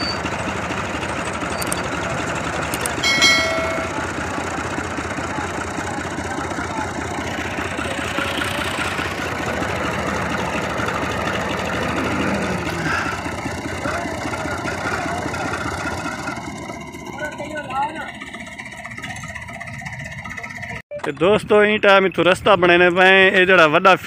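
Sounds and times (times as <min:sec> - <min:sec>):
tractor diesel engine chugging: 0:00.0 - 0:24.0
ringing chime: 0:03.0 - 0:04.2.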